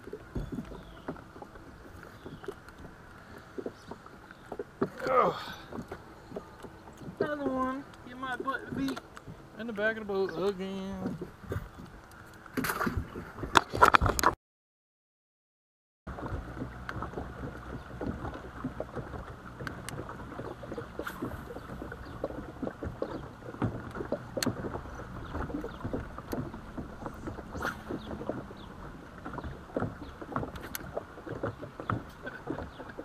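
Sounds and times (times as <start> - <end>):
small waves lapping against boat hull: 0.0 - 14.4, 16.1 - 33.0.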